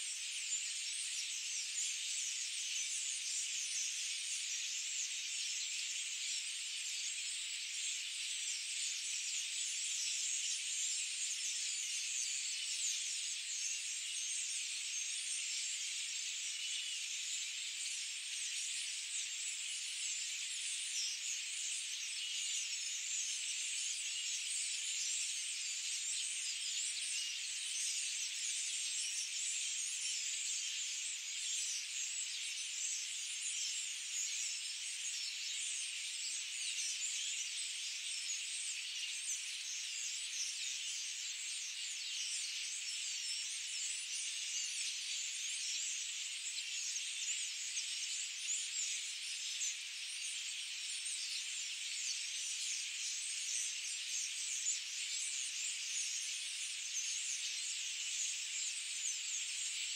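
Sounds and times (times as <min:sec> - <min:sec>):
high-pitched hiss: 0:00.0 - 0:07.3.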